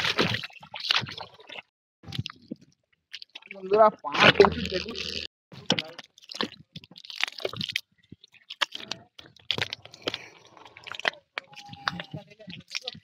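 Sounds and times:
bare feet squelching in mud: 3.2s - 13.0s.

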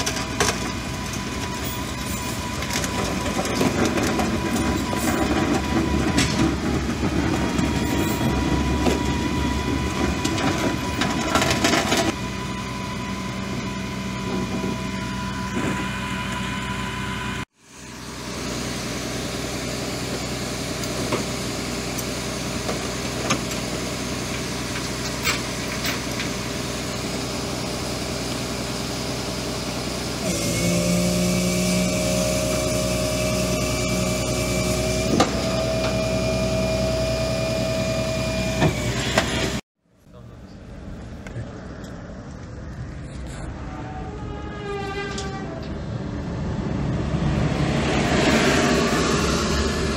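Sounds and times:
truck engine running: 0.0s - 39.6s, 45.8s - 49.9s.

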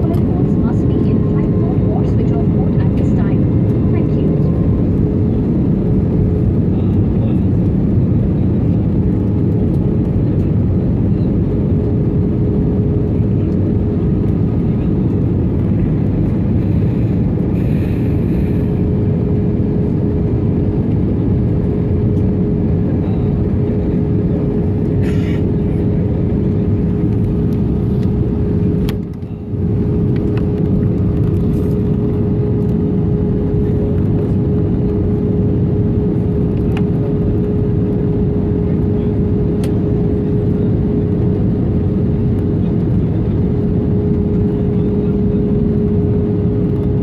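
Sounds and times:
jet engines and airflow roar: 0.0s - 47.0s
steady hum tone: 14.6s - 42.2s.

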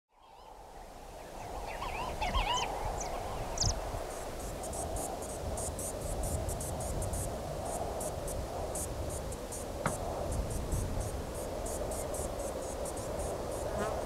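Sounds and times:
background hiss: 0.2s - 14.0s
insects stridulating: 1.2s - 14.0s
bird chirping: 1.7s - 3.8s.

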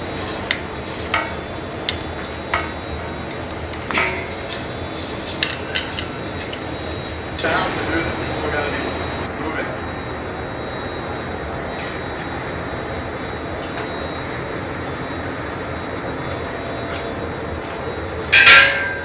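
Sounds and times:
gas burner roaring: 0.0s - 19.0s
loud hiss: 4.3s - 11.5s.

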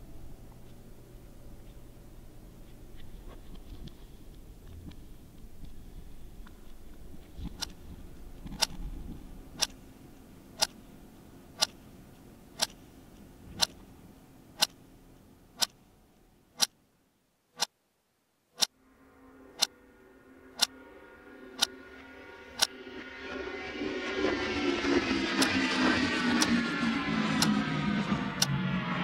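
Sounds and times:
low background rumble: 0.0s - 29.0s
clock ticking: 9.6s - 9.8s, 10.6s - 10.8s, 11.6s - 11.8s, 12.6s - 12.8s, 13.6s - 13.8s, 14.6s - 14.8s, 15.6s - 15.8s, 17.6s - 17.8s, 27.4s - 27.6s
soft music with held tones: 18.7s - 29.0s.

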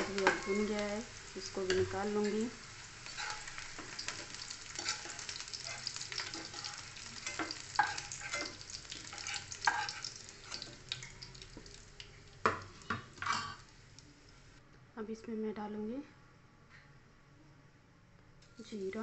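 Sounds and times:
onions sizzling in oil: 0.0s - 14.6s
spoon scraping and clinking pan: 3.1s - 11.2s.

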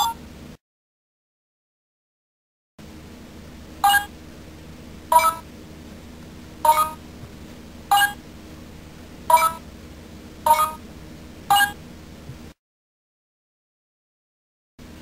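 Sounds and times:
toy phone key-press beeps: 3.8s - 4.1s, 5.1s - 5.4s, 6.7s - 7.0s, 7.9s - 8.2s, 9.3s - 9.6s, 10.5s - 10.8s, 11.5s - 11.8s.

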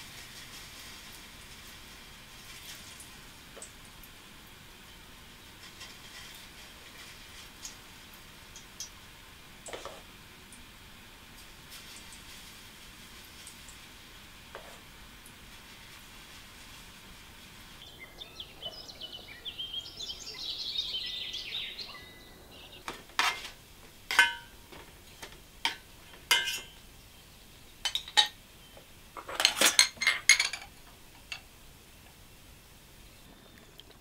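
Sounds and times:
dough sizzling in hot oil: 0.0s - 19.0s, 22.8s - 29.2s
utensil and dishes clinking: 22.9s - 26.8s, 27.8s - 28.4s, 29.2s - 31.5s.

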